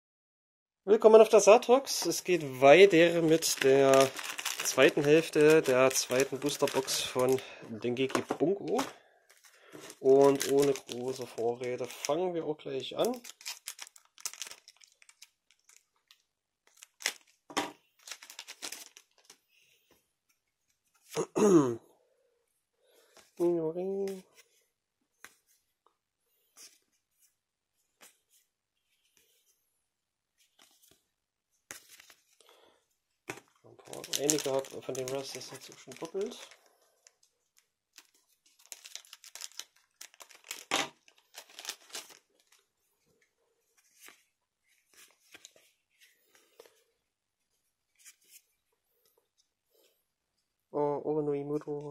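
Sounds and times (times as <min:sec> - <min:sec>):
foil pack crinkling: 0:02.0 - 0:12.2, 0:13.0 - 0:17.4, 0:18.0 - 0:19.4, 0:33.8 - 0:42.7.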